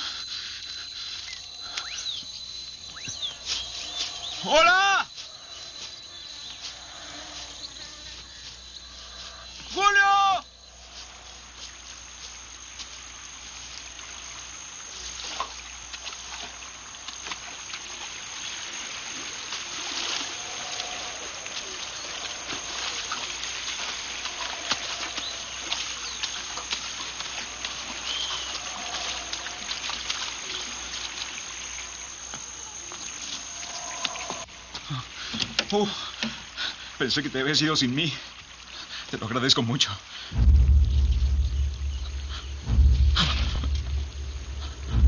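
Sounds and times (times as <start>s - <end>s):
running water: 0.0s - 45.0s
footsteps splashing through water: 10.7s - 36.6s, 40.4s - 45.0s
faint animal calls: 19.8s - 26.6s, 27.4s - 30.7s, 32.6s - 35.2s.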